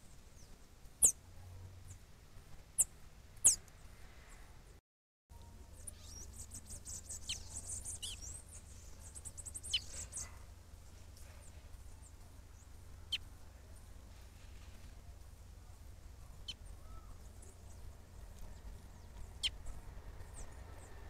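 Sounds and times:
rapid twittering bird chirps: 0.3 - 1.2, 2.8 - 3.6, 5.7 - 10.5, 16.4 - 21.0.

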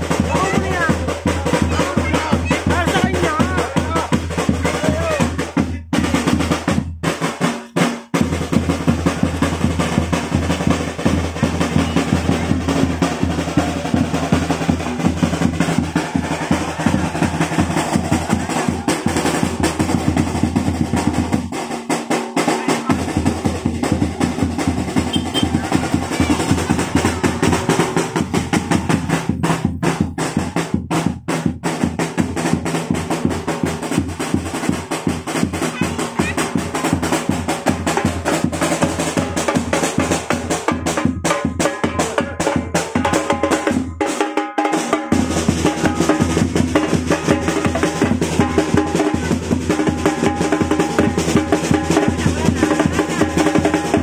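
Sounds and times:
drum rolls: 0.0 - 7.4, 8.0 - 44.0, 44.8 - 54.0
drum-heavy music: 0.0 - 54.0.

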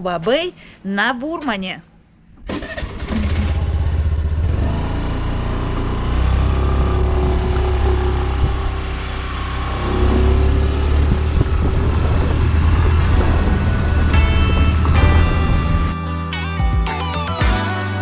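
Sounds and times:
scooter engine running: 2.5 - 16.0.

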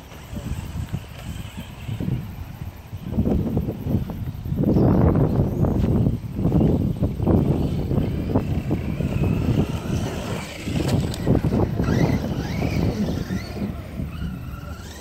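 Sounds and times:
toy car motor whining: 0.0 - 3.1, 6.6 - 15.0.

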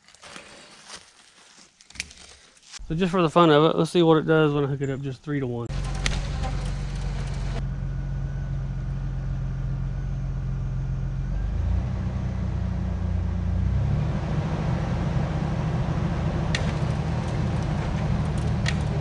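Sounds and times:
truck engine running: 5.7 - 19.0.

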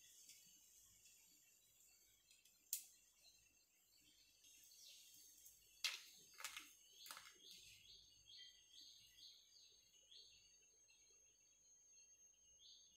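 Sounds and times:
faint bird chirps: 0.0 - 12.9
snacks knocking on a plate: 5.8 - 7.4.

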